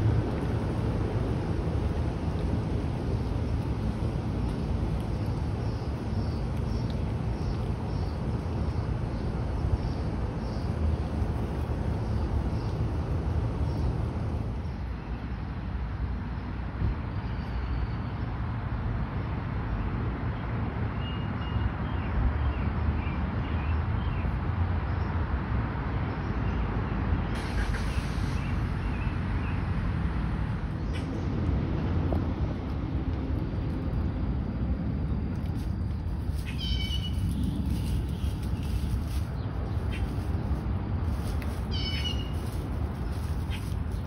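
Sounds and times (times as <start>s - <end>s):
low background rumble: 0.0s - 15.4s, 28.6s - 44.0s.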